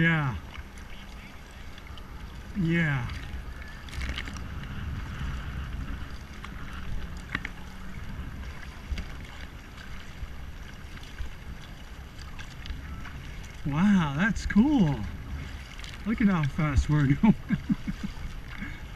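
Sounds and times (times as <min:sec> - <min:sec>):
kayak paddles splashing: 0:00.0 - 0:18.9
water washing along hull: 0:00.0 - 0:18.9
wind rumbling on microphone: 0:00.0 - 0:18.9.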